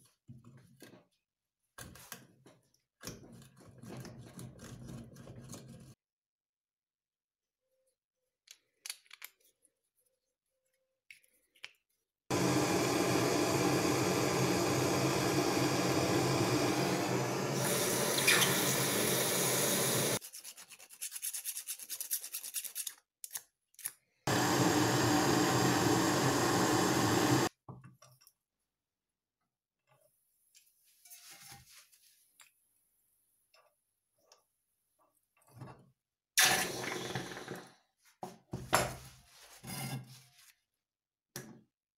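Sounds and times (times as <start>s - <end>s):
blowtorch flame hissing: 12.3s - 20.2s, 24.3s - 27.5s.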